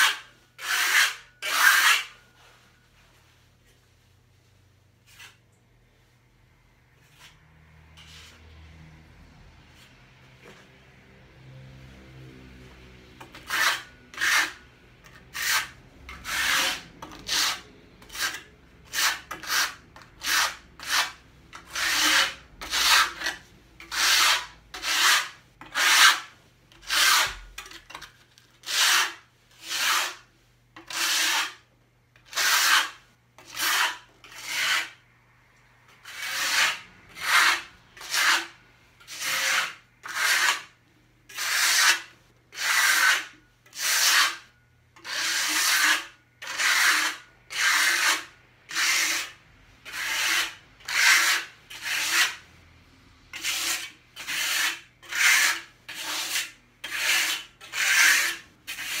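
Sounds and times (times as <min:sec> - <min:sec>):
trowel scraping mortar: 0:00.0 - 0:02.2, 0:13.2 - 0:35.0, 0:35.9 - 0:52.4, 0:53.3 - 0:59.0.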